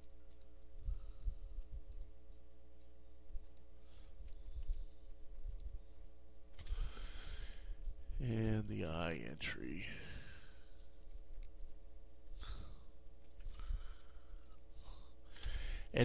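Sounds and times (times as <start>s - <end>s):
keyboard and mouse clicks: 0.0s - 0.6s, 1.8s - 2.2s, 4.2s - 5.8s, 11.1s - 11.8s
electrical hum: 0.0s - 16.0s.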